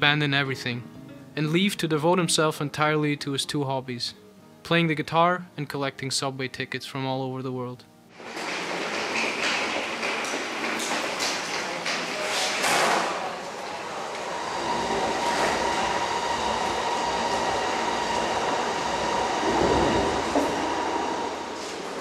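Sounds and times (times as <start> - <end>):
metro train rumble: 14.0 - 22.0
high whine: 14.1 - 22.0.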